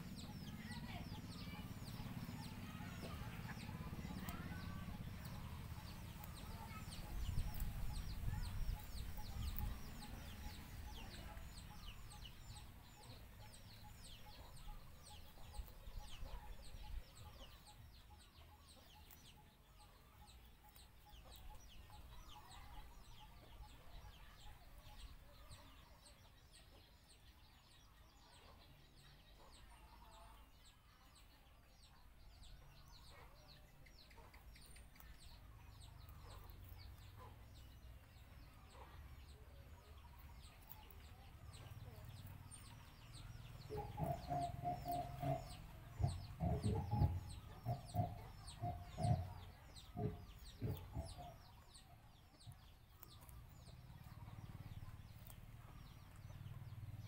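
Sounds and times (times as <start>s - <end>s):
rapid high bird chirps: 39.8s - 57.0s.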